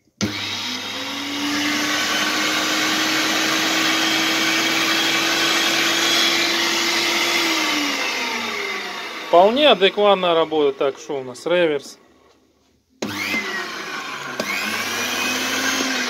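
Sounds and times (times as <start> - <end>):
electric meat grinder whirring: 0.2 - 11.0, 13.0 - 16.0.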